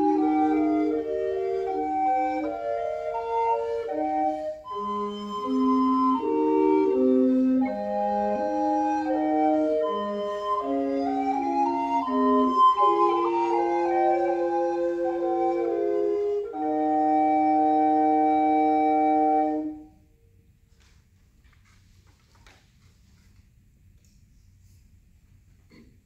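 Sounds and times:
recorder quartet playing: 0.0 - 20.0.

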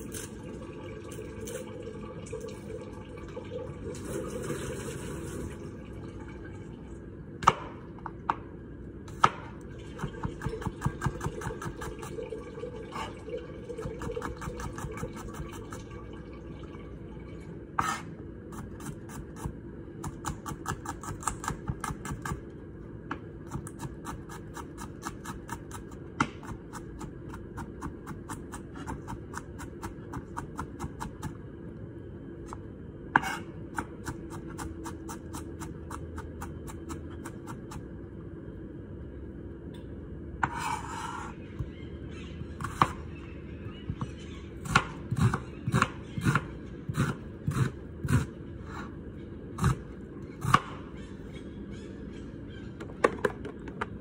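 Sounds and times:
knife slicing onion: 9.1 - 12.0, 17.8 - 22.4, 23.5 - 31.3, 42.6 - 43.0, 44.6 - 48.9
knife blade scraping board: 17.8 - 18.1, 33.2 - 33.5, 40.4 - 41.4.

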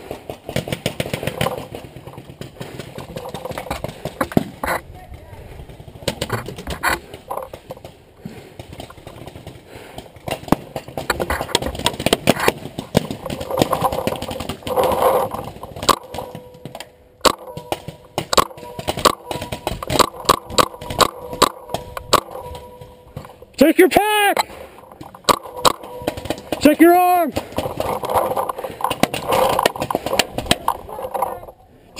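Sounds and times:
paintball gunfire: 10.2 - 23.5, 24.4 - 30.9.

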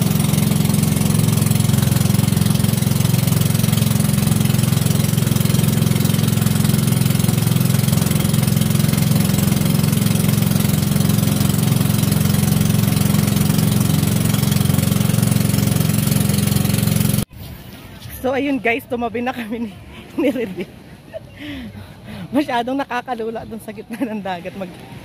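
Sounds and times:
boat engine chugging: 0.0 - 17.3.

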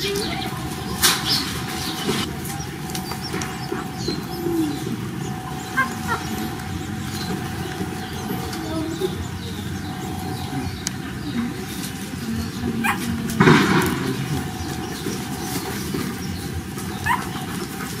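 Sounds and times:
puppies whimpering and yelping: 0.0 - 12.0, 12.7 - 13.4, 14.4 - 18.0.

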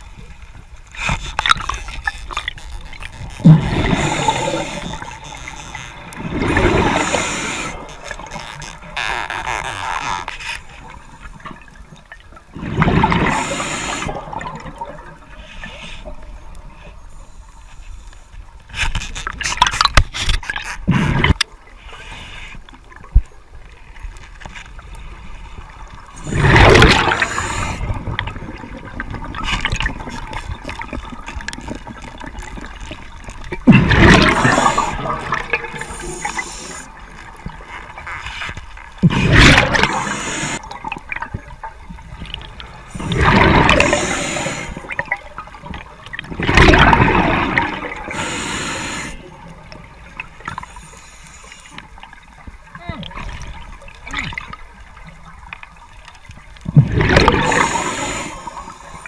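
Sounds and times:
diver's bubbles rushing underwater: 3.4 - 5.0, 6.2 - 8.2, 12.5 - 15.3, 26.1 - 38.0, 39.0 - 50.4, 56.7 - 58.7.

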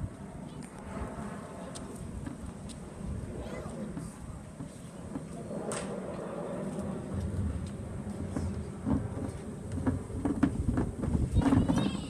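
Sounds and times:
bin wheels rumbling over pavers: 8.3 - 12.0.

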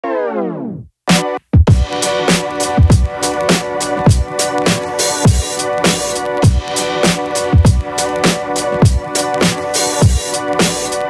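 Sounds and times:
drum machine hits: 1.1 - 11.0
deep kick drums: 1.6 - 1.9.

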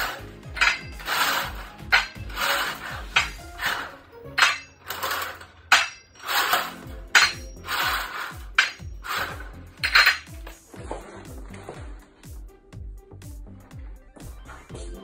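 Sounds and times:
glass bottles clinking: 0.0 - 10.6
background music with bass line: 0.0 - 15.0.

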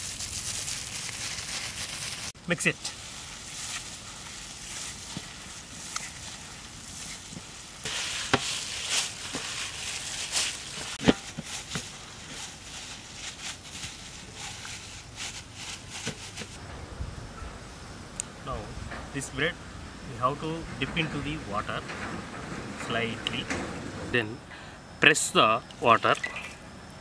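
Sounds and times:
plastic gloves crinkling: 0.0 - 16.6.

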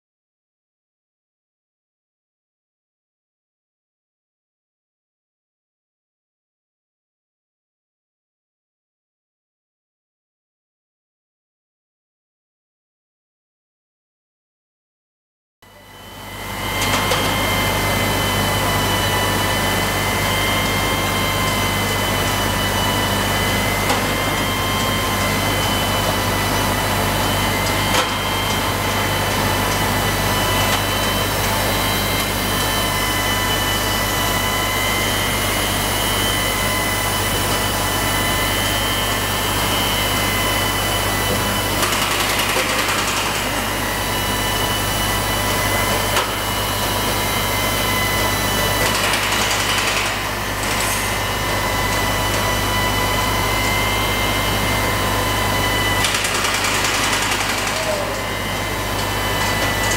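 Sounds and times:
valve grinding machine whining: 15.7 - 59.9.

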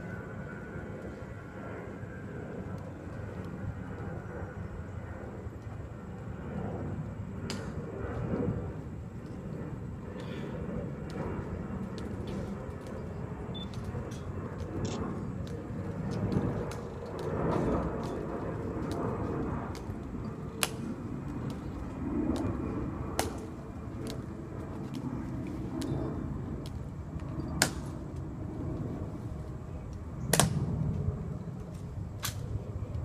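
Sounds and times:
low outdoor rumble: 0.0 - 33.0.

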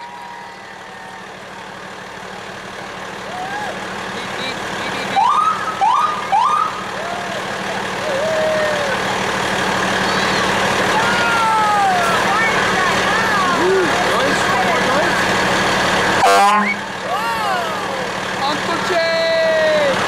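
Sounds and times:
fire truck siren whoops: 0.0 - 1.7, 3.2 - 3.9, 5.2 - 14.0, 16.2 - 18.2
truck engine hum: 0.0 - 20.0.

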